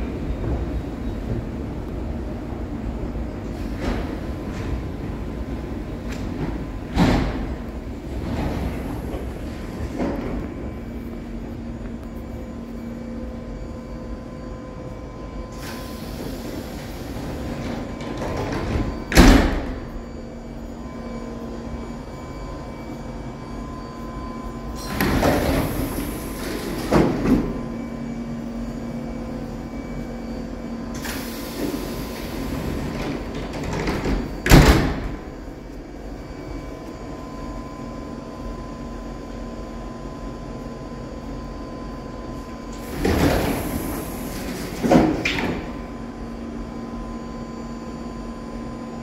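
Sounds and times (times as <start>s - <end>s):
train humming: 0.0s - 49.0s
doors hissing air: 15.5s - 19.9s, 24.7s - 28.2s, 30.8s - 35.4s, 42.6s - 46.0s.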